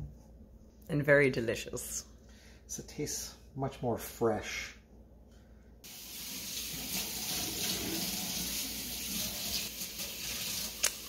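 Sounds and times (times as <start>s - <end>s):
water running from a tap: 5.9s - 11.0s.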